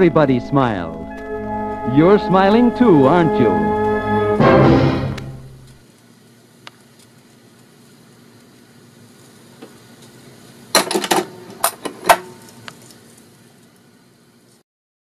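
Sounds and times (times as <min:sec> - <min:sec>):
record player hum and hiss: 0:00.0 - 0:14.6.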